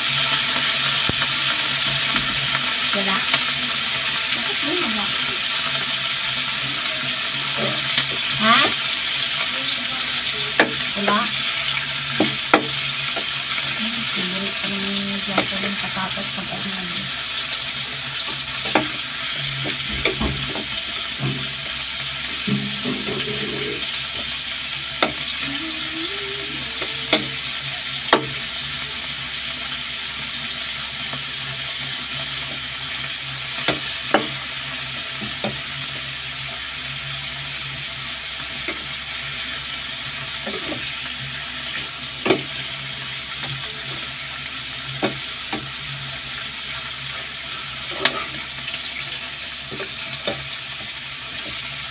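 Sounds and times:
chicken sizzling in oil: 0:00.0 - 0:51.9
metal spatula scraping a pan: 0:22.4 - 0:24.0, 0:47.5 - 0:48.5.

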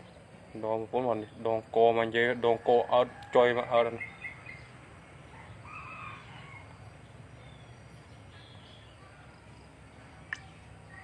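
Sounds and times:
faint rooster crowing: 0:02.4 - 0:04.3, 0:05.3 - 0:07.0.

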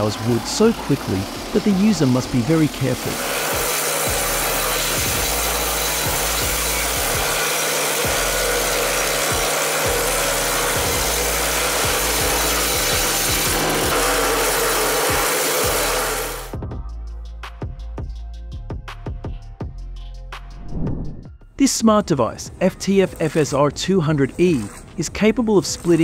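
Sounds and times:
wood chipper grinding branches: 0:00.0 - 0:16.5, 0:22.9 - 0:26.0.

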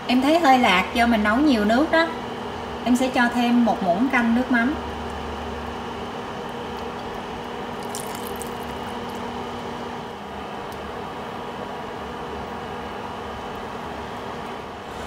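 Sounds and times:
soup boiling and bubbling: 0:04.8 - 0:12.1.

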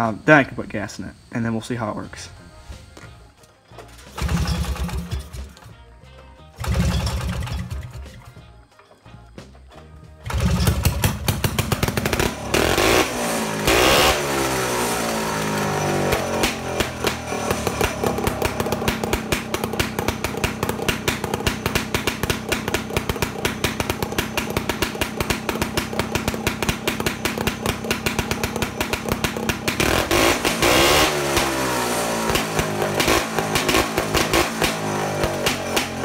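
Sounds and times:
snowmobile engine idling and revving: 0:04.1 - 0:05.4, 0:06.6 - 0:08.0, 0:10.2 - 0:36.0.

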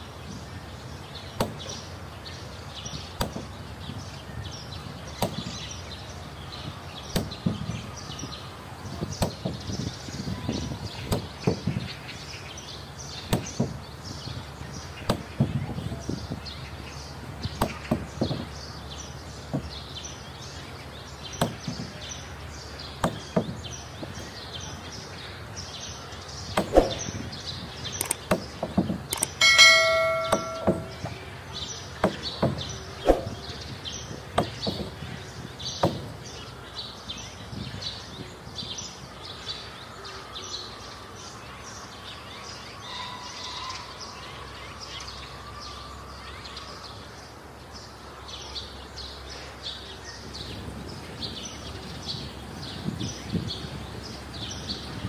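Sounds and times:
birds chirping: 0:00.0 - 0:55.0
mallet knocking on wooden planks: 0:28.2 - 0:31.2
ringing metallic clang: 0:29.2 - 0:31.2.

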